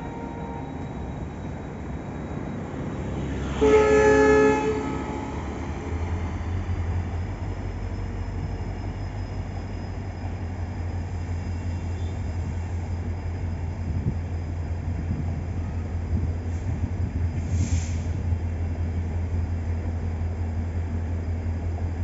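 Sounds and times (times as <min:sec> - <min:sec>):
train running rumble: 0:00.0 - 0:22.0
train horn blast: 0:03.4 - 0:06.0.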